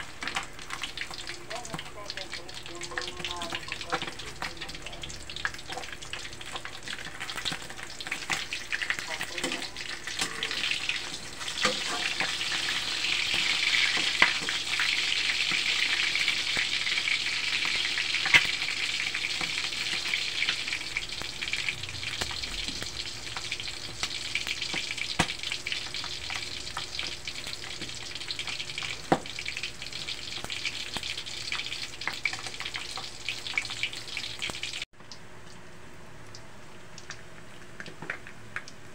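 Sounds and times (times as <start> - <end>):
fish sizzling in hot oil: 0.0 - 34.9.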